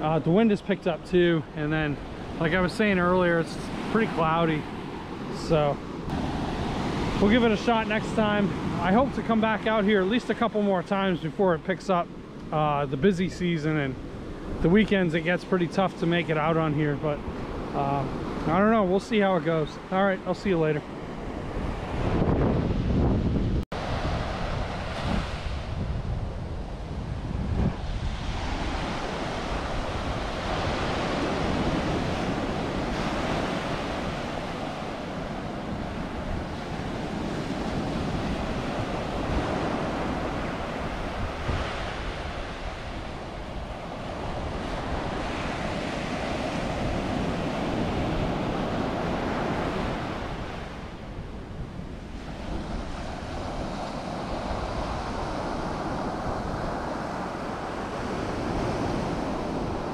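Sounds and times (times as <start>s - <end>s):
surf breaking on beach: 0.0s - 11.7s, 12.9s - 59.9s
wind buffeting microphone: 20.6s - 59.9s.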